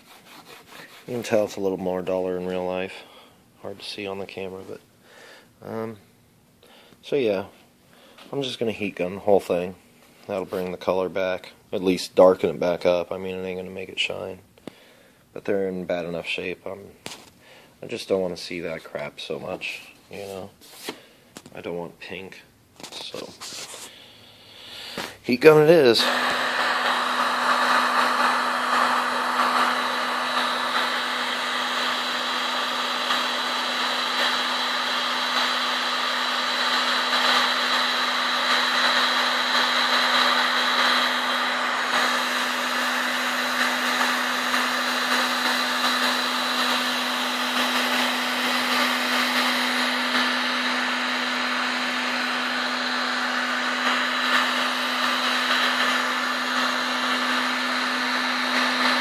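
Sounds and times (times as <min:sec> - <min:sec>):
heat gun blowing air: 0:23.0 - 0:59.0.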